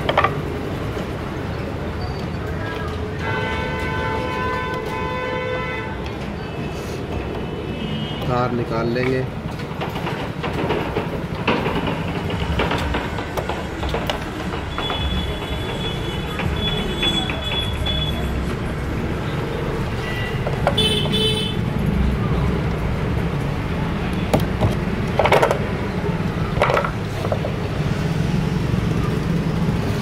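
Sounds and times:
street traffic rumble: 0.0s - 30.0s
vehicle horns tooting: 3.2s - 6.0s, 20.0s - 21.6s.

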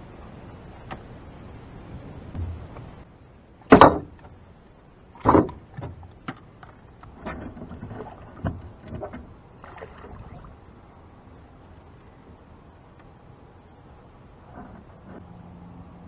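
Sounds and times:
small splashes: 7.0s - 10.7s.

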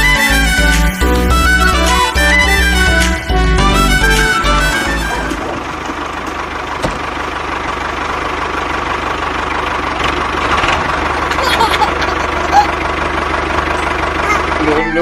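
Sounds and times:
background music: 0.0s - 5.4s
small engine running: 4.8s - 15.0s.

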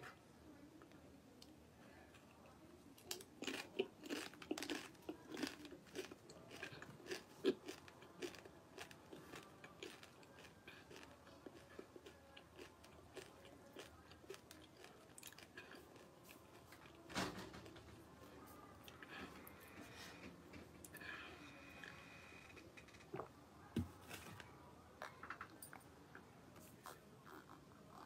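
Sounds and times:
chip crunching: 3.0s - 16.1s.

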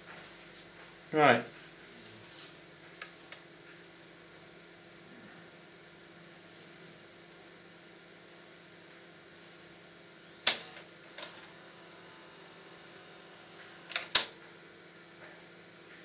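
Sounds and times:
faint steady hum: 0.0s - 16.0s
sharp mechanism clicks: 13.9s - 14.4s.

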